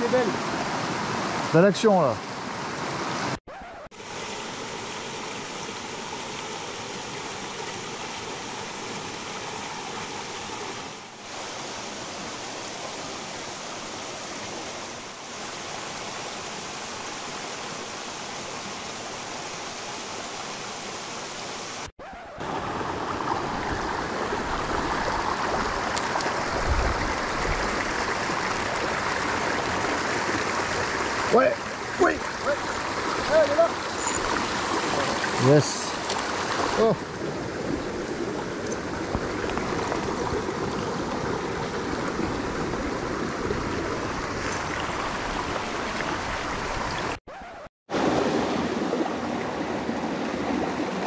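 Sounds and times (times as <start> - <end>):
stream splashing over boulders: 0.0 - 47.2, 47.9 - 51.0.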